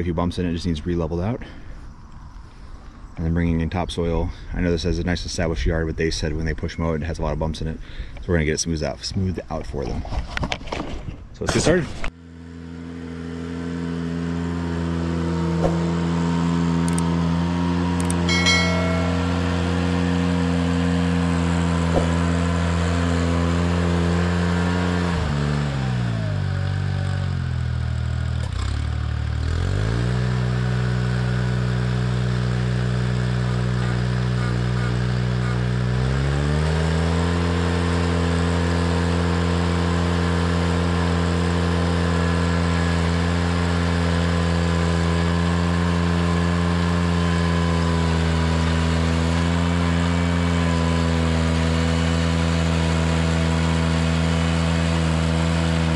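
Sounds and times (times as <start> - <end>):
tractor engine revving: 12.4 - 55.9.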